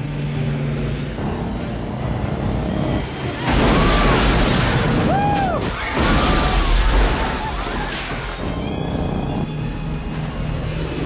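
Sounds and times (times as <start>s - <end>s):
loud crash: 3.4s - 8.5s.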